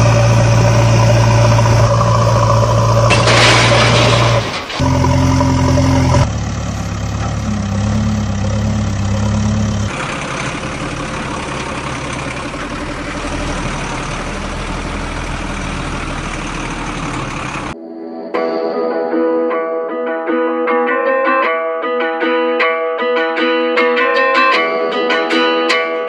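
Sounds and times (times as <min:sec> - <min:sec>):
heavy vehicle engine running: 0:00.0 - 0:17.8.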